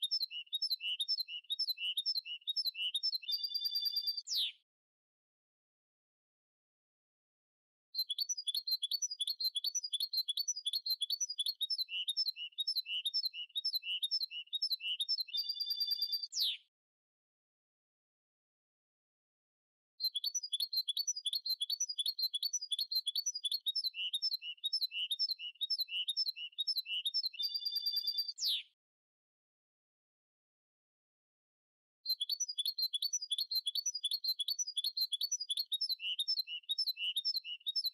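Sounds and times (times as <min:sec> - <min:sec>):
bird singing chirping notes: 0:00.0 - 0:04.6, 0:08.0 - 0:16.6, 0:20.0 - 0:28.7, 0:32.1 - 0:37.9.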